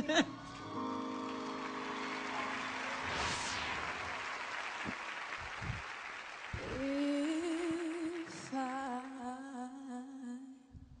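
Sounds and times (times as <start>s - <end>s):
audience applauding and cheering: 0.4s - 9.3s
woman singing: 6.6s - 10.9s.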